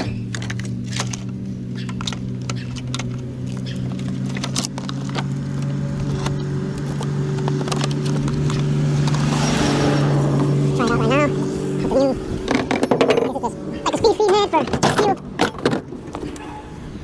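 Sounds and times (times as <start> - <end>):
plastic clicks and rattles: 0.0 - 9.3
idling engine hum: 0.0 - 17.0.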